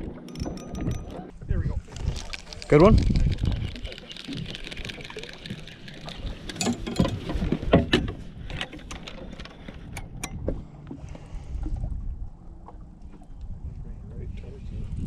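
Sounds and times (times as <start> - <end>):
fishing tackle clicks and knocks: 0.0 - 1.3, 2.0 - 10.6
low rumble of wind and water: 0.0 - 15.0.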